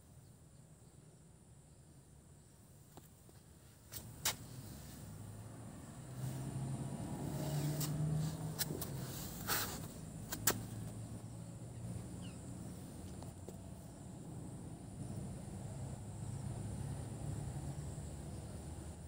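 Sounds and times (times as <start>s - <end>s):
low engine hum: 4.0s - 19.0s.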